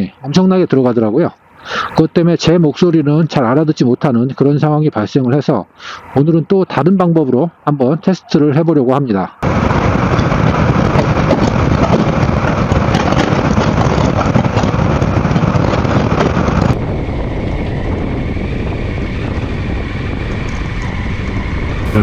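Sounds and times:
road noise: 0.0 - 22.0
scooter engine: 9.4 - 16.8
wind buffeting microphone: 9.4 - 22.0
faint high whine: 16.8 - 22.0.

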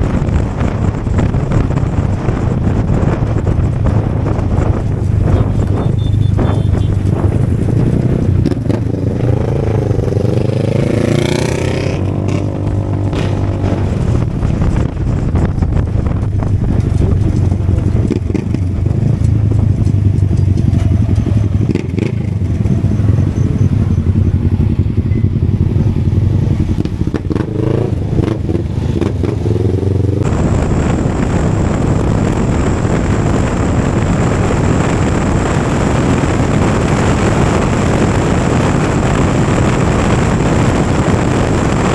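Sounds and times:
motorcycle engine droning: 0.0 - 41.9
passing vehicle engines: 0.0 - 41.9.

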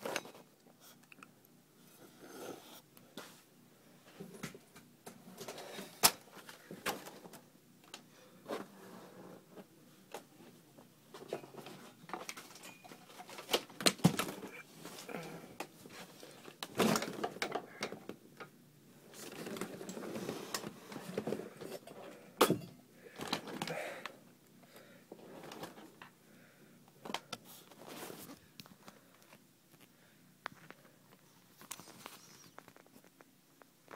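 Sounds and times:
rustling: 25.2 - 33.9.

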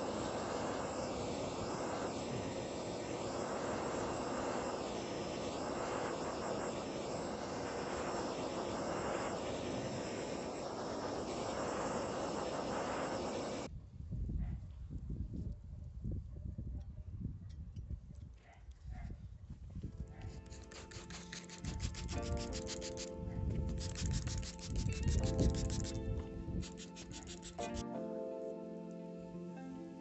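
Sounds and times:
gas torch hissing: 0.0 - 13.7, 20.2 - 27.8.

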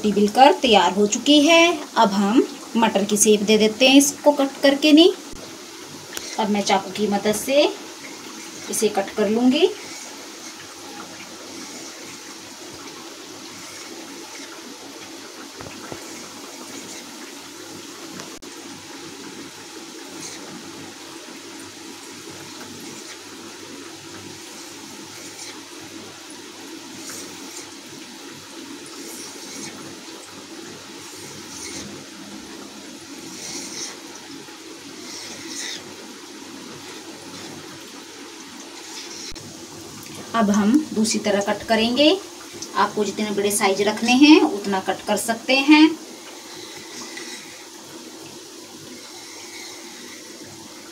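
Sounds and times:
dough deep-frying in hot oil: 0.0 - 50.9
knife scraping through dough: 31.0 - 32.0, 33.2 - 34.1.

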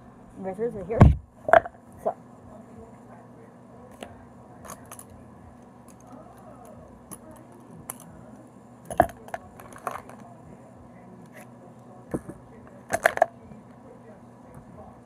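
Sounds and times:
plastic pens clicking and clattering: 4.7 - 5.1, 8.9 - 10.3.

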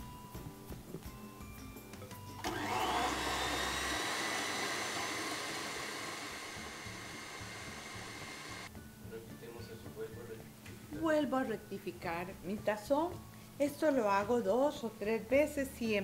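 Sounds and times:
stand mixer motor whining: 2.4 - 8.7.

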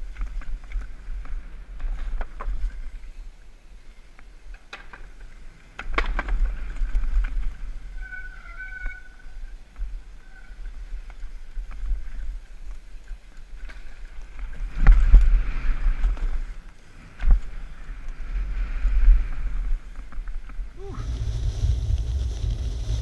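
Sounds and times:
bike rattling: 13.0 - 23.0
wind buffeting microphone: 13.5 - 23.0
tyres skidding over dirt: 20.9 - 23.0.

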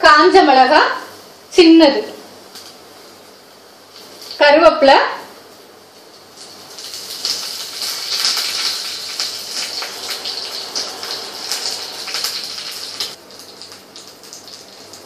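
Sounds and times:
leaves sizzling in hot oil: 2.3 - 15.0.

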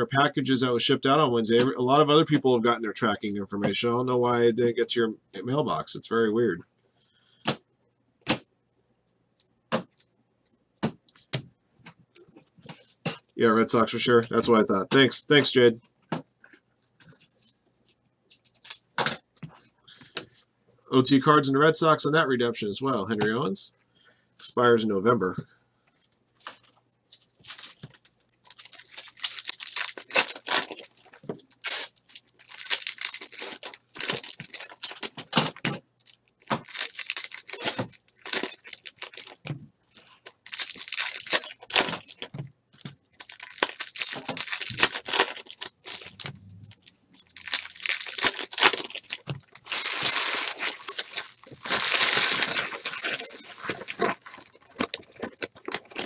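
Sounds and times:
card pack wrappers crinkling: 26.4 - 56.0.

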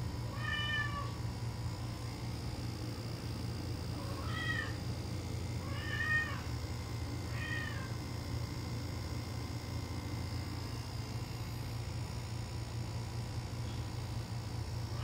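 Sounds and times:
kitten meowing: 0.3 - 1.2, 4.0 - 4.8, 5.6 - 6.5, 7.3 - 7.9.

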